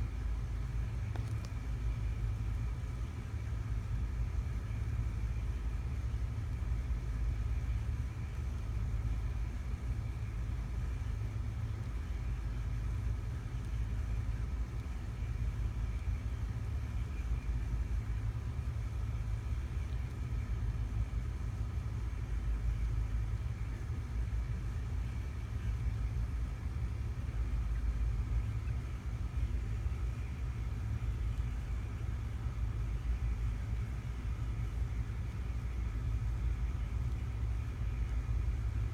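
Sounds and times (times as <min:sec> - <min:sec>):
faint hum: 0:00.0 - 0:38.9
low background rumble: 0:00.0 - 0:38.9.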